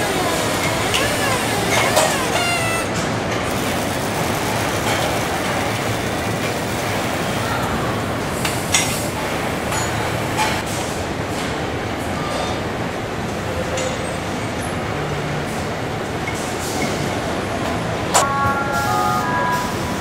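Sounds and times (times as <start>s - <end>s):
machine whine: 0.0s - 7.4s
conveyor machinery din: 0.0s - 20.0s.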